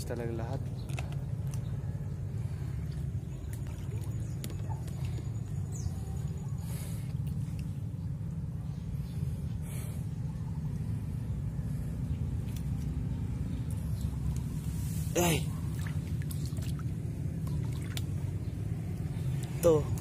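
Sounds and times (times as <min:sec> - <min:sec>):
low rumble: 0:00.0 - 0:20.0
hands splashing in water: 0:15.7 - 0:18.2.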